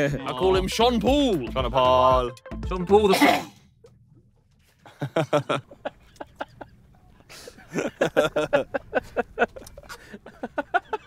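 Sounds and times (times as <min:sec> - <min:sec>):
men laughing: 0:04.7 - 0:11.0.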